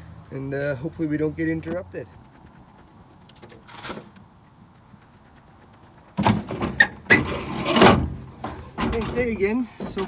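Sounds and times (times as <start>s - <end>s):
junk clattering and knocking: 6.2s - 10.0s.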